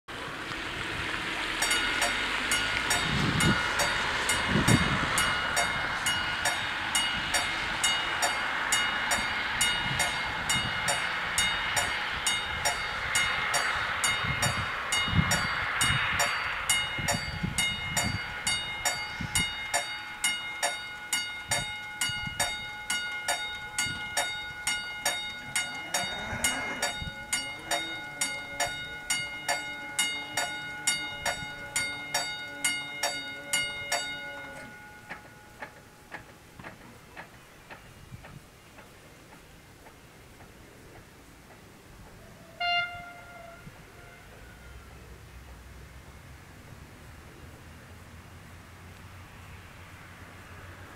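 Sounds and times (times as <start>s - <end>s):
passing road traffic: 0.1s - 50.9s
level crossing warning bells: 1.5s - 37.0s, 42.6s - 45.0s.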